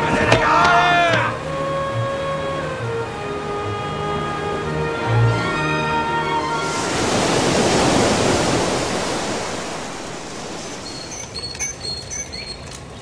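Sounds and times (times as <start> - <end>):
surf breaking: 6.5 - 11.2
high bird chirps: 10.3 - 13.0.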